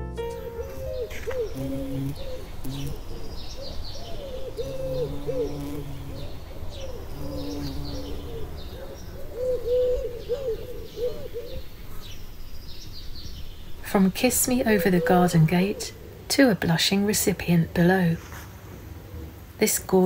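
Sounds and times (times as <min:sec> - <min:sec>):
songbirds chirping: 0:00.0 - 0:20.0
pigeons cooing: 0:00.4 - 0:16.3.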